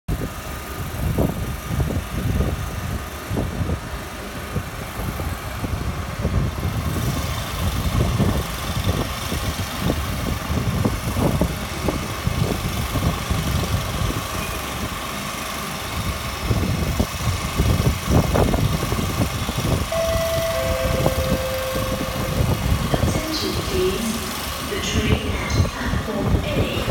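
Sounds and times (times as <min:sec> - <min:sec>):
train rumbling through station: 0:00.1 - 0:26.9
two-tone chime: 0:19.9 - 0:24.6.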